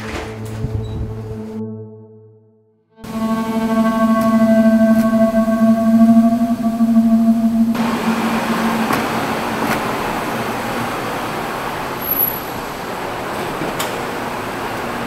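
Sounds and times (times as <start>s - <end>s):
low musical drone: 0.0s - 11.7s.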